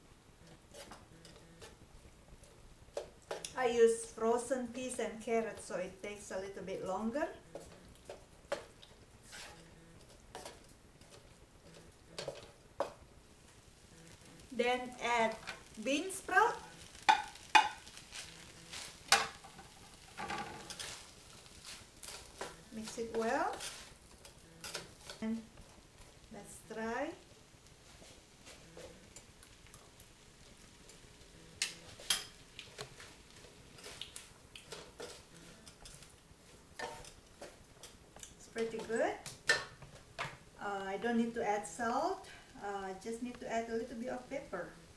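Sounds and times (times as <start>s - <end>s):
wooden spatula scraping a wok: 0.6s - 1.8s, 2.4s - 13.0s, 13.6s - 29.4s, 30.6s - 40.4s
utensils clicking on cookware: 17.0s - 17.9s, 31.6s - 32.9s.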